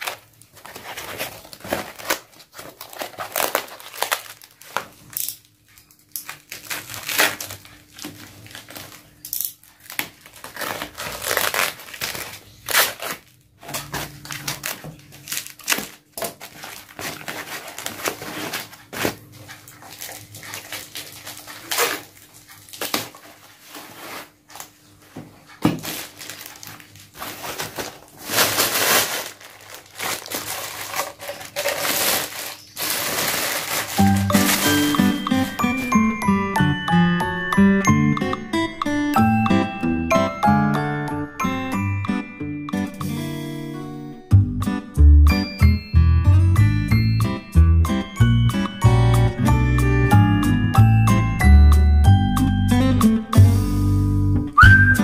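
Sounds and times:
packaging tearing: 0:00.0 - 0:24.8, 0:25.8 - 0:36.0
plastic packaging crinkling: 0:00.0 - 0:36.2.

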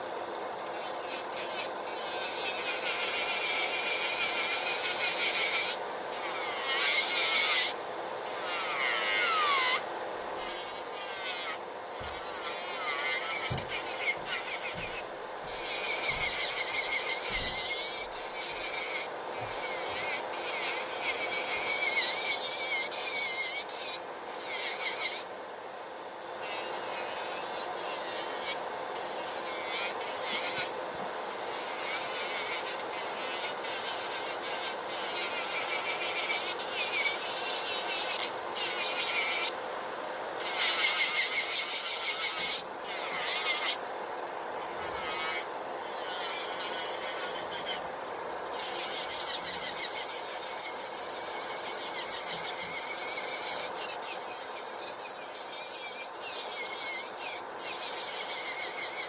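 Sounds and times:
nail drill sanding acrylic nail: 0:00.6 - 0:09.8, 0:10.4 - 0:25.3, 0:26.4 - 0:39.6, 0:40.4 - 0:43.8, 0:44.6 - 0:47.8, 0:48.5 - 0:59.0
drill motor hum: 0:10.4 - 0:25.2.

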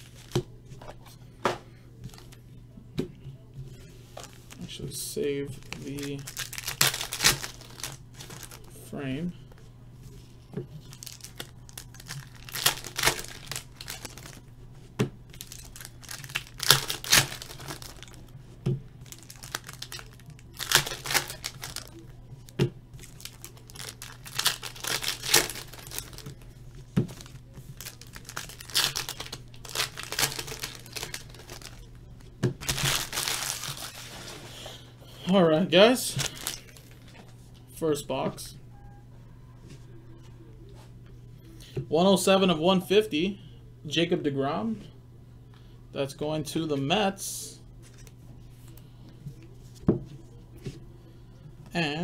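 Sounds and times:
wrappers crinkling and tearing: 0:04.1 - 0:08.8, 0:10.8 - 0:14.5, 0:15.3 - 0:18.2, 0:19.0 - 0:34.8, 0:36.0 - 0:37.4.

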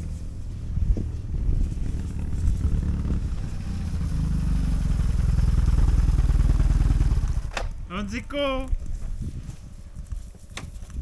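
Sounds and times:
motorcycle engine running at low speed: 0:00.0 - 0:07.9.

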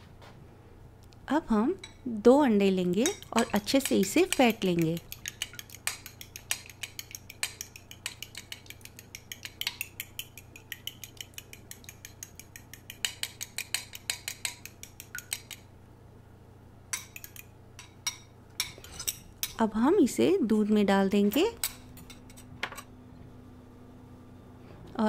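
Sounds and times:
utensil clicking against bowl: 0:03.0 - 0:15.7, 0:16.9 - 0:18.2.

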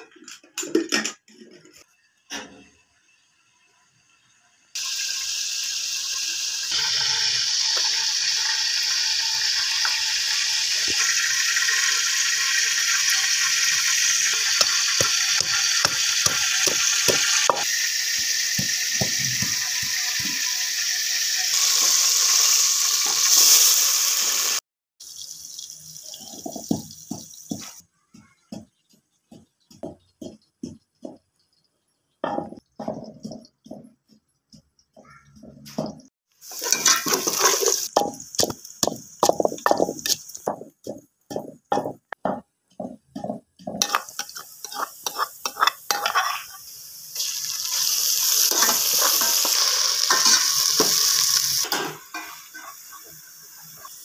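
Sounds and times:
food sizzling in a pot: 0:01.8 - 0:33.8, 0:35.7 - 0:54.0
pestle pounding in a clay mortar: 0:14.6 - 0:17.7, 0:27.5 - 0:31.2, 0:38.0 - 0:44.0.

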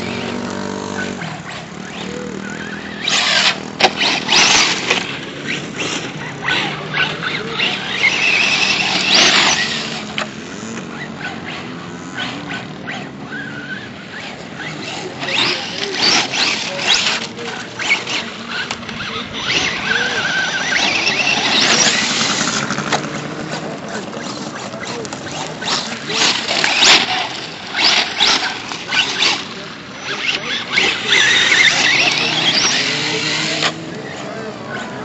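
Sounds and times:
electric motor whining: 0:00.0 - 0:35.0.

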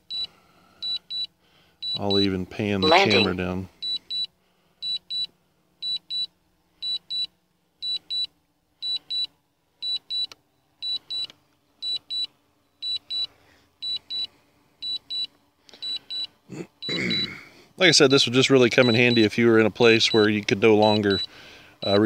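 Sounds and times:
high-pitched electronic beeps: 0:02.8 - 0:04.3.

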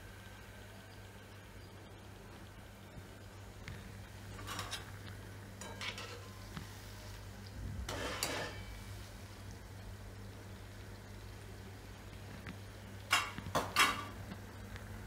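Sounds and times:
dough frying in oil: 0:00.0 - 0:15.0
skimmer scraping metal pan: 0:04.3 - 0:05.0, 0:05.6 - 0:06.4, 0:07.9 - 0:08.8.

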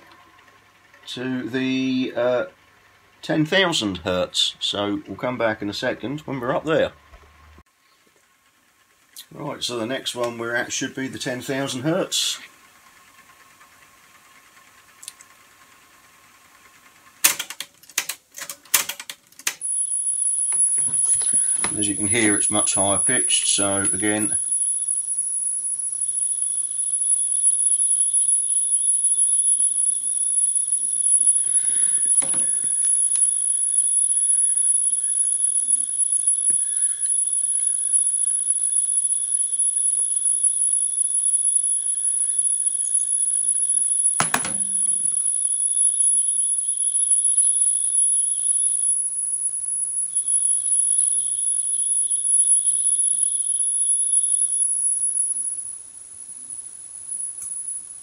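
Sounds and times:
high-pitched test tone whine: 0:00.0 - 0:02.6, 0:09.2 - 0:15.7, 0:19.5 - 0:58.0
clicks: 0:17.2 - 0:19.7, 0:20.4 - 0:24.5, 0:44.2 - 0:45.3.

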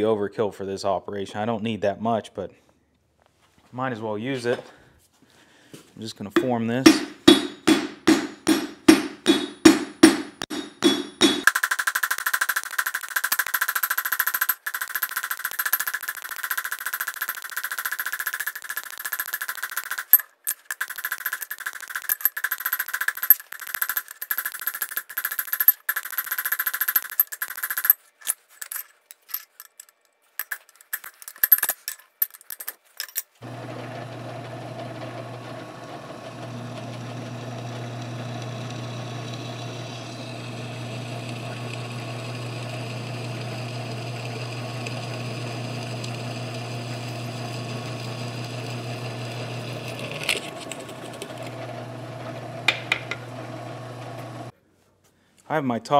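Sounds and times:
hammer striking steel on anvil: 0:06.4 - 0:11.5
drill press humming: 0:33.4 - 0:54.5
drill bit cutting through steel: 0:33.5 - 0:50.0.

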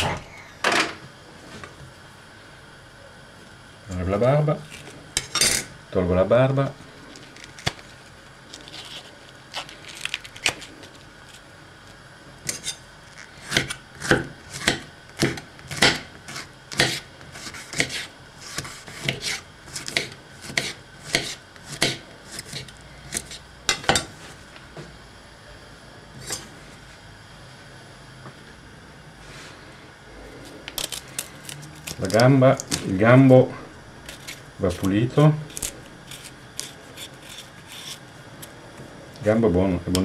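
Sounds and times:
knife chopping on cutting board: 0:13.5 - 0:23.4.

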